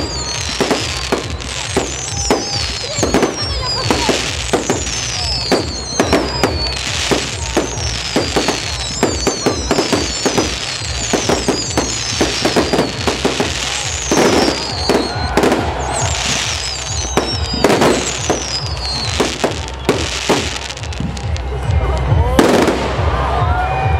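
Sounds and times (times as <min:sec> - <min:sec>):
falling firework whistles: 0:00.0 - 0:21.4
fireworks bangs and crackle: 0:00.0 - 0:23.9.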